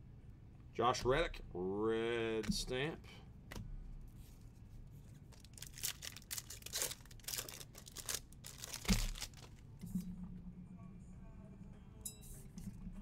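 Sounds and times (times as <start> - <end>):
foil wrapper crinkling and tearing: 5.3 - 9.6.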